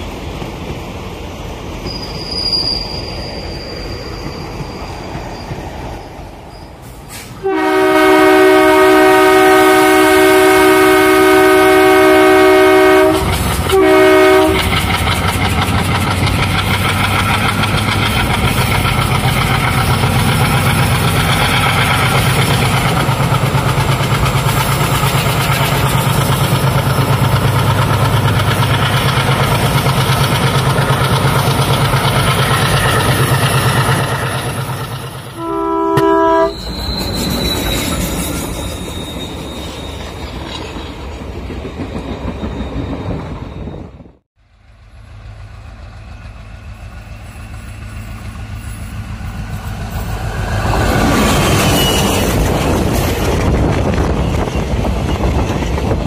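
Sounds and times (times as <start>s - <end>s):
train coaches rushing past: 0.0s - 56.0s
locomotive horn: 7.4s - 14.8s, 35.3s - 36.6s
wheels clattering on rails: 13.2s - 13.8s, 14.4s - 43.7s, 49.2s - 56.0s.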